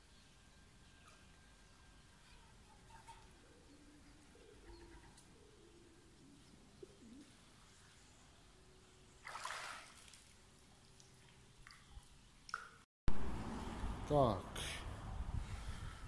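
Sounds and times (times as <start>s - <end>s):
water splash: 9.2s - 10.4s.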